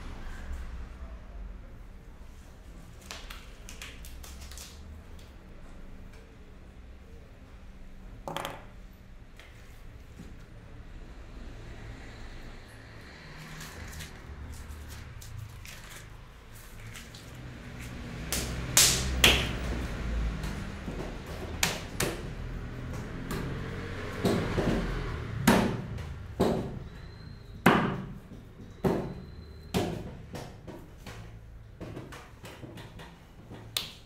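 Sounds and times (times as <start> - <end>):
plastic wrapping rustling: 13.6 - 18.0.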